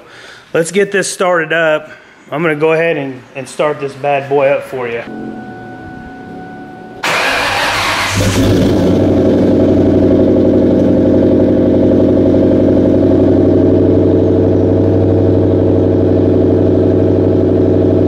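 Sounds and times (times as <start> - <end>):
car engine idling: 5.3 - 18.0.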